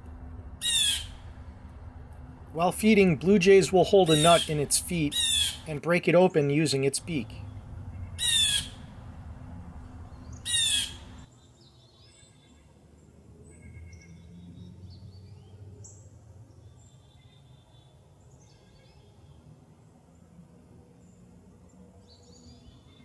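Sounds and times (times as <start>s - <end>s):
blue jay harsh jeer call: 0.6s - 1.3s, 2.6s - 5.8s, 7.0s - 9.0s, 10.3s - 11.2s
small birds chirping: 0.6s - 1.5s, 2.6s - 12.6s.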